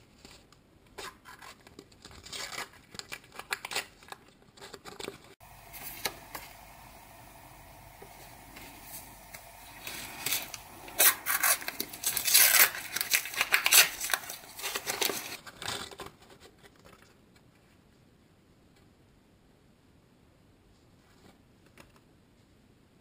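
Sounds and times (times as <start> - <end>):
wrapper tearing and crinkling: 1.0 - 6.9, 8.9 - 16.2.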